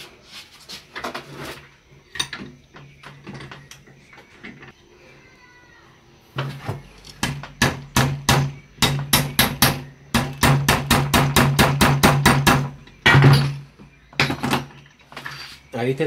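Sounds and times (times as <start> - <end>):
hammer striking metal: 7.2 - 13.6.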